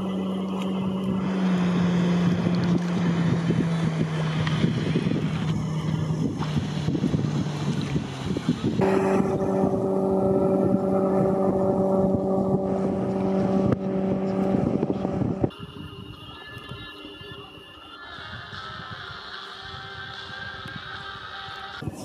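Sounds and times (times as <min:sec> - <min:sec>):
motorboat engine running: 0:00.0 - 0:17.5
rushing noise: 0:08.8 - 0:15.5.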